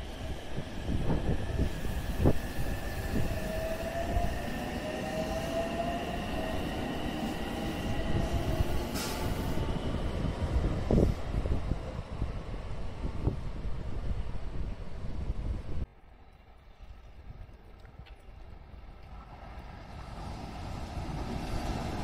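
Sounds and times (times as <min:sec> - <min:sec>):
short hiss: 0:08.9 - 0:09.5.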